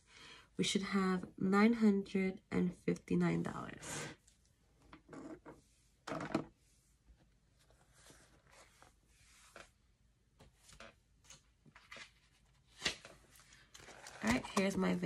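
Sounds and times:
paper rustling: 7.5s - 9.8s, 10.4s - 15.0s.

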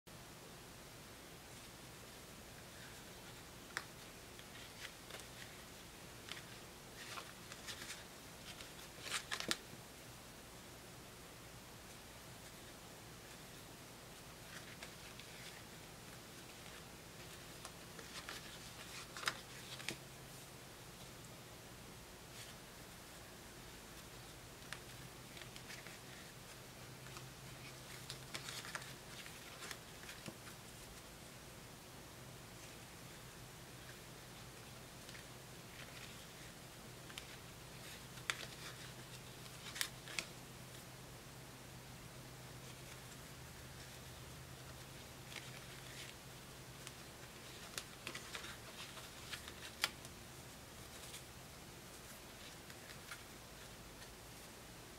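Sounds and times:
faint steady hum: 0.1s - 54.9s
playing cards clicking and sliding: 2.7s - 5.6s, 6.2s - 9.7s, 14.4s - 20.0s, 23.9s - 30.6s, 33.8s - 40.8s, 42.6s - 50.2s, 51.9s - 54.5s.

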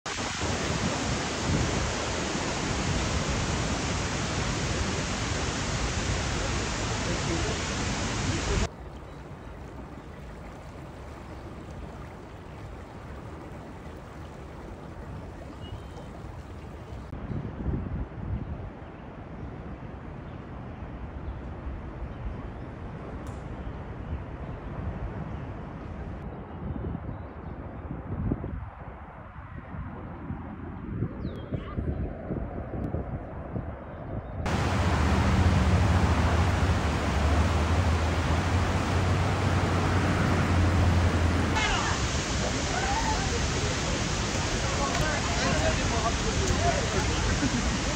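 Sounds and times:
distant waterfall rushing: 0.1s - 17.2s, 34.5s - 47.9s.

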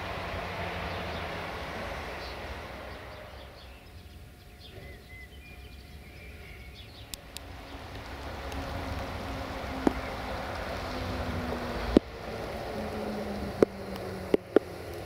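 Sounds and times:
broad rushing noise: 0.0s - 5.0s, 6.8s - 15.0s
low rumble: 0.0s - 15.0s
small birds chirping: 0.0s - 15.0s.

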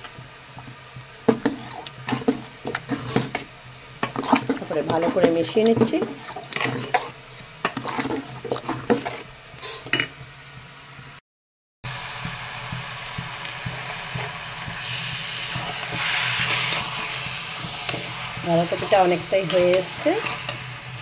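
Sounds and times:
curry sizzling in a wok: 0.0s - 11.2s, 11.8s - 21.0s
metal spatula stirring: 1.2s - 10.1s, 13.6s - 20.8s
metal ladle scraping a pot: 1.3s - 10.1s, 14.1s - 20.7s.

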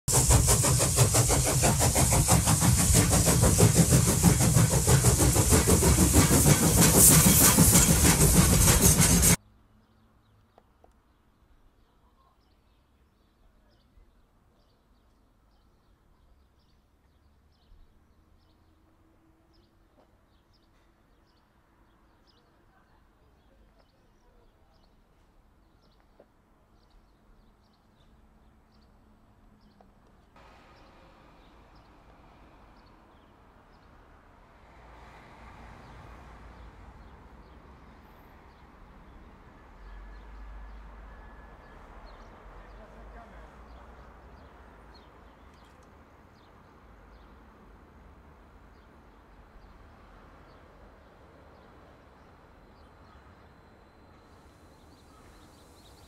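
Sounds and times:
train sound effect: 0.1s - 9.4s, 30.4s - 45.2s, 46.0s - 56.0s
faint clicks: 45.5s - 46.0s.

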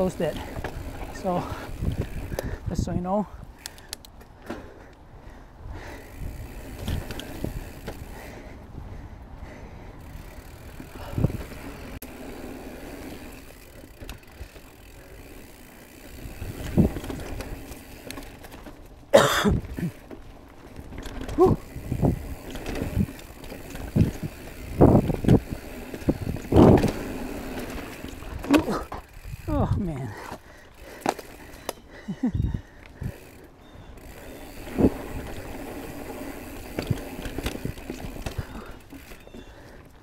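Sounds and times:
bike tyre rumble on dirt trail: 0.0s - 40.0s
bike knocks and rattles: 10.4s - 29.4s, 34.0s - 39.4s.

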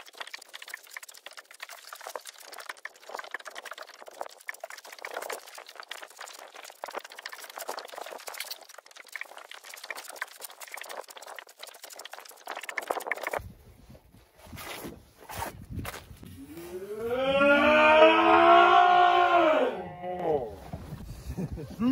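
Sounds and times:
water dripping and splashing: 0.0s - 13.5s.

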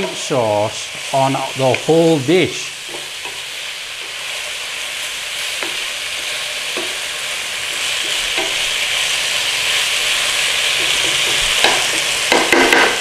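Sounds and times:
food sizzling in oil: 0.0s - 13.0s
spatula knocking against pan: 10.8s - 13.0s.

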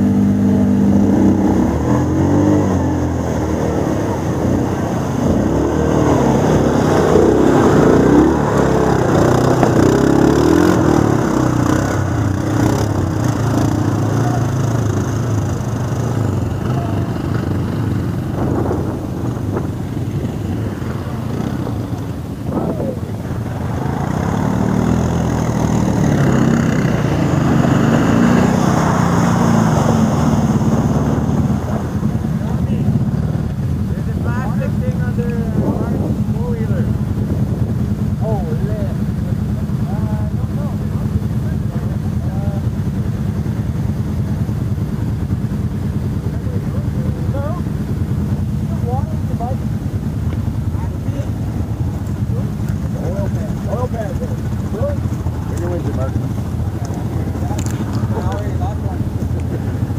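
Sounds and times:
atv engines running: 0.0s - 59.9s.

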